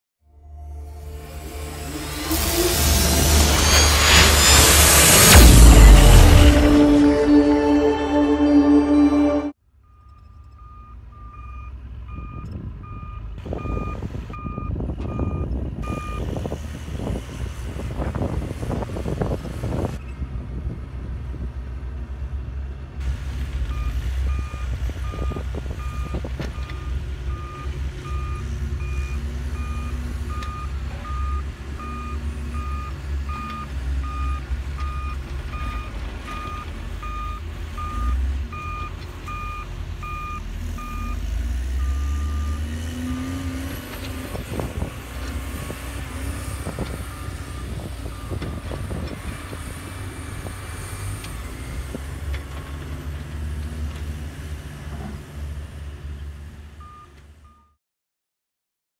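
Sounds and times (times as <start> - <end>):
diesel machines rumbling: 0.2 - 57.4
engine revving: 0.4 - 9.6, 23.0 - 55.7
reversing alarm beeping: 0.7 - 16.2, 23.7 - 43.4, 56.8 - 57.8.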